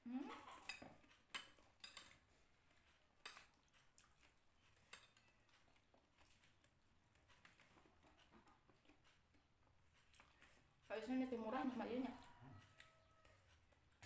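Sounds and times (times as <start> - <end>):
cutlery clinking against plate: 0.6 - 2.2, 4.8 - 5.4.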